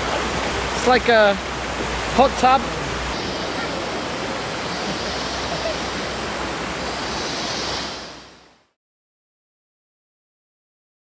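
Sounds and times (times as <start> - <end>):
river water rushing and lapping: 0.0 - 8.8.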